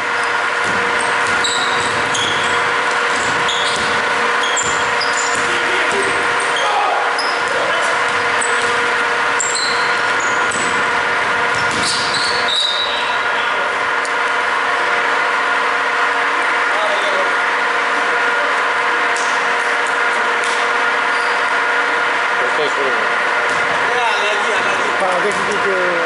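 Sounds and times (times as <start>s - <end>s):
steady hum in a hall: 0.0s - 26.0s
sneakers squeaking on hardwood: 0.2s - 13.2s, 21.1s - 21.6s
basketball bouncing: 0.6s - 6.2s, 7.4s - 12.5s, 23.4s - 23.8s.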